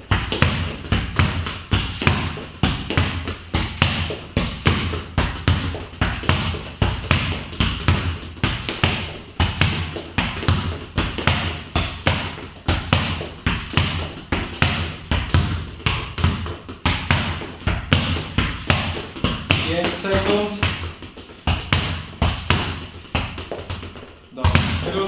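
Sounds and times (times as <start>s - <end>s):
football kicked against a wall: 0.1s - 25.0s.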